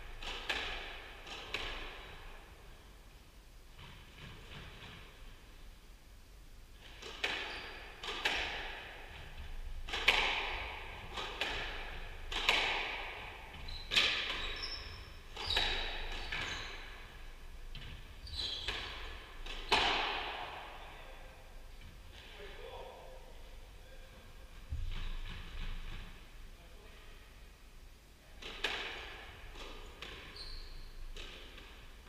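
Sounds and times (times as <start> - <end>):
squash ball cracks: 6.8 - 9.0, 9.8 - 13.3, 28.4 - 30.3
shoes squeaking on wooden floor: 13.5 - 19.9, 30.2 - 31.2.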